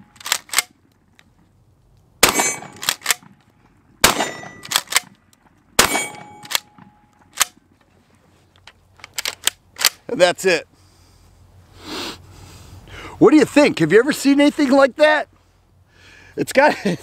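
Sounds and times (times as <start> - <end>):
shotgun shots: 2.2 - 3.3, 4.0 - 5.2, 5.8 - 7.6.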